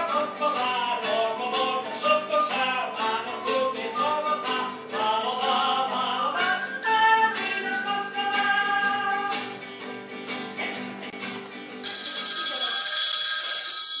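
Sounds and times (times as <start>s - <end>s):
high-pitched ringing: 11.8s - 14.0s.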